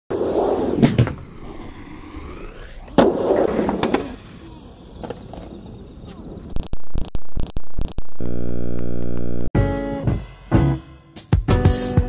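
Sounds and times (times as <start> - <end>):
skateboard wheels rolling: 0.1 - 6.5.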